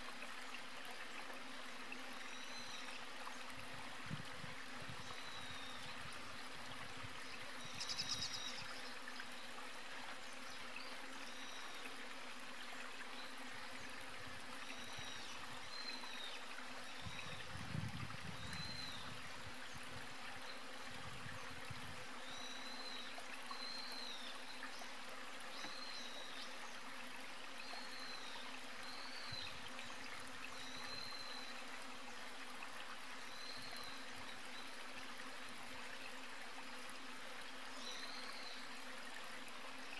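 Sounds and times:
outdoor background hiss: 0:00.0 - 0:39.9.

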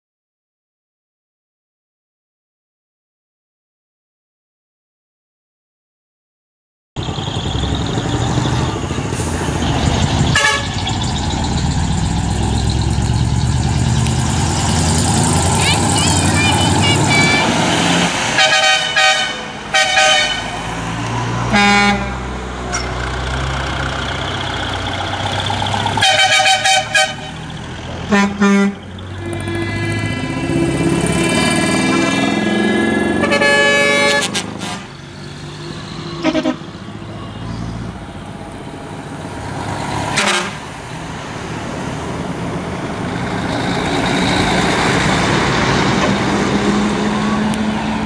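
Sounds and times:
truck engines passing: 0:07.0 - 0:48.0
truck air horns: 0:10.3 - 0:10.9, 0:18.3 - 0:20.8, 0:21.4 - 0:23.0, 0:25.9 - 0:30.5, 0:33.1 - 0:35.0, 0:35.7 - 0:36.8, 0:40.1 - 0:40.7.

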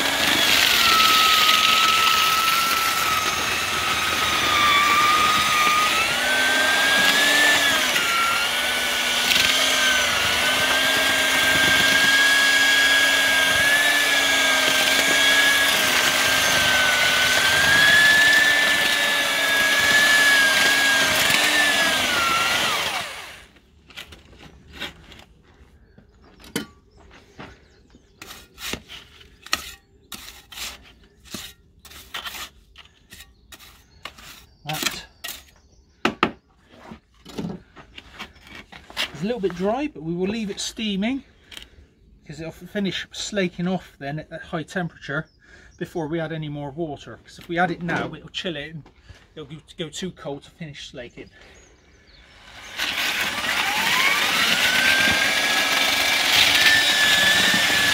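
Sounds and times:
paddle mixer motor whining: 0:00.0 - 0:23.6, 0:52.2 - 0:57.9
trowel scraping metal bin: 0:28.2 - 0:35.6.

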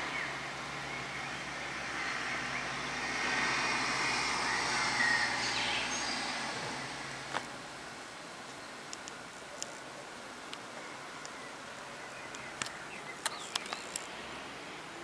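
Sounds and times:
small airplane drone overhead: 0:00.0 - 0:15.0.

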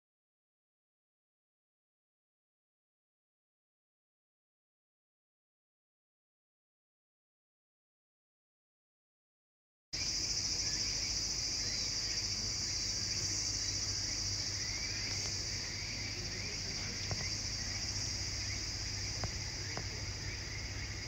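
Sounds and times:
crickets chirping: 0:10.0 - 0:21.0
low steady hum: 0:10.0 - 0:21.0.

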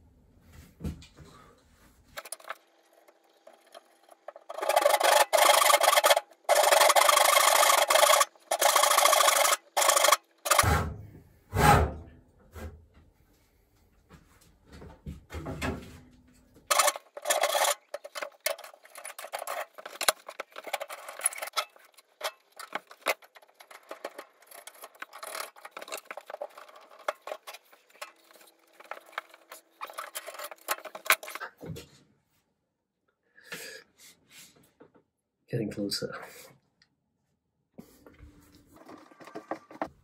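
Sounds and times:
hand tool scraping wood: 0:04.2 - 0:10.7, 0:16.7 - 0:31.5.

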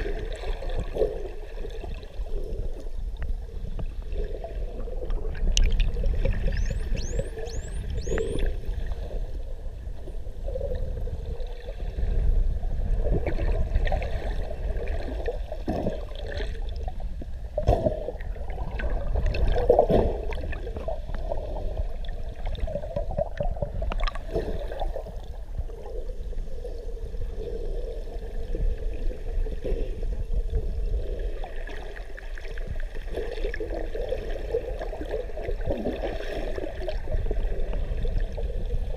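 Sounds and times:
low rumble of water: 0:00.0 - 0:38.9
dolphin clicks and pulses: 0:05.4 - 0:08.6
dolphin whistles: 0:06.5 - 0:08.5.

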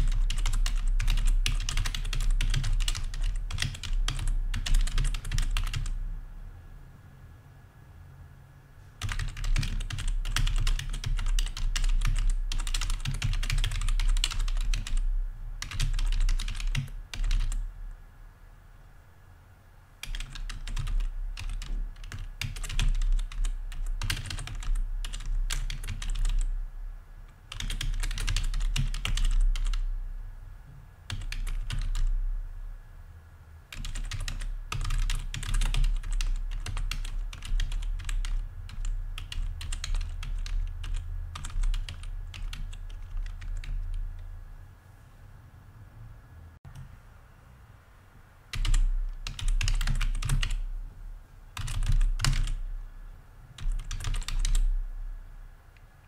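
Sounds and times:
computer keyboard typing: 0:00.0 - 0:06.0, 0:09.0 - 0:17.6, 0:20.0 - 0:26.5, 0:27.5 - 0:29.9, 0:31.1 - 0:32.1, 0:33.7 - 0:44.3, 0:48.5 - 0:50.7, 0:51.6 - 0:52.6, 0:53.6 - 0:54.7.

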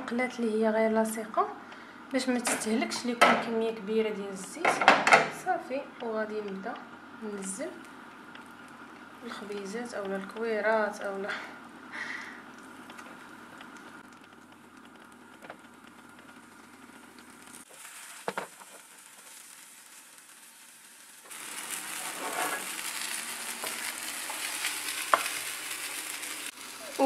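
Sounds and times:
patties sizzling in pan: 0:05.4 - 0:27.0.

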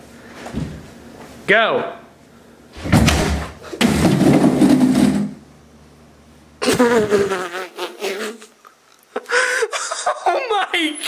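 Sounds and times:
door kicked in crashing: 0:02.8 - 0:05.4.

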